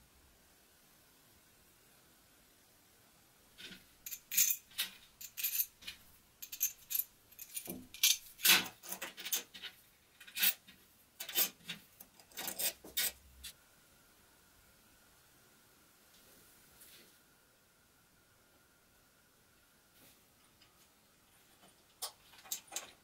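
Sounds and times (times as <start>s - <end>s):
small metal screws clinking: 3.6s - 13.2s.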